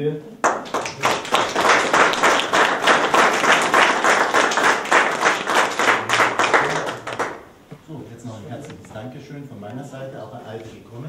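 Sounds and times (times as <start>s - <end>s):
audience applauding: 0.4s - 7.5s.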